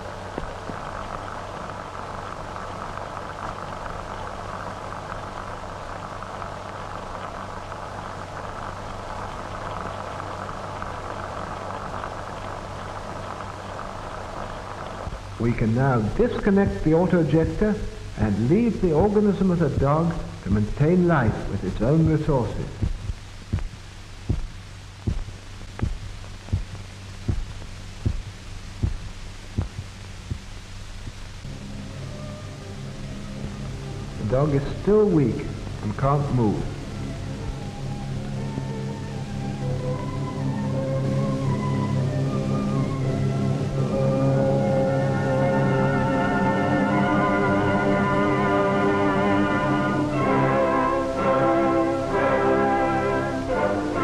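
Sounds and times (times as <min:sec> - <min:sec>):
film soundtrack hiss and hum: 0:00.0 - 0:54.0
heartbeat thumps: 0:15.0 - 0:15.3, 0:16.5 - 0:17.7, 0:18.9 - 0:31.3.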